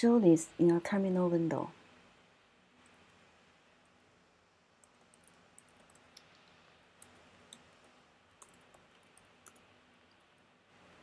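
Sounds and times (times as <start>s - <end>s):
typing on computer keyboard: 4.8s - 10.2s.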